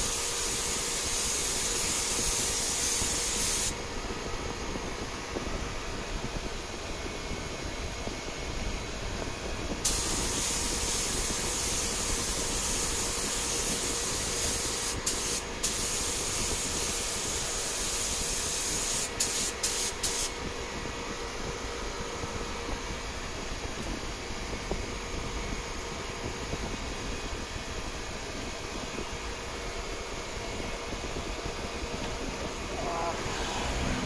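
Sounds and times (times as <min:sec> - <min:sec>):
paint spray gun hissing: 0:00.0 - 0:03.8, 0:09.8 - 0:20.3.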